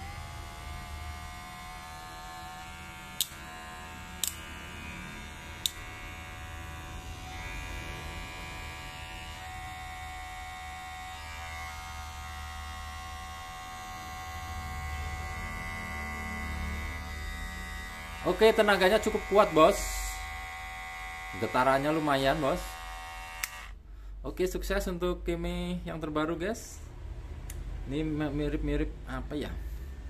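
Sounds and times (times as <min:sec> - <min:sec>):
hair clipper humming: 0:00.0 - 0:23.8
sharp clicks: 0:23.4 - 0:23.7.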